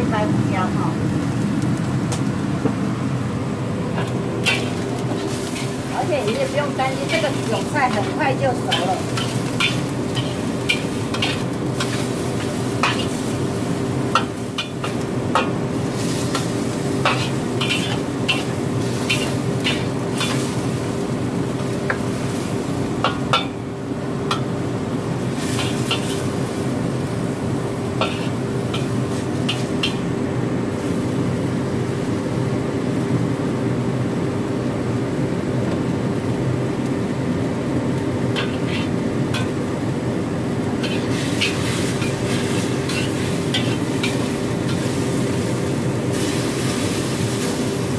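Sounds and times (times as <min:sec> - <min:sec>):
food sizzling: 0:00.0 - 0:33.4, 0:36.6 - 0:47.9.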